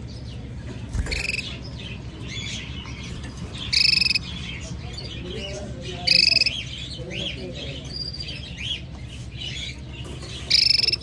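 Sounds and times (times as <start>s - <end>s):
canary chirping: 0.0s - 11.0s
buzzy bird trills: 0.9s - 5.2s, 5.9s - 6.8s, 9.1s - 11.0s.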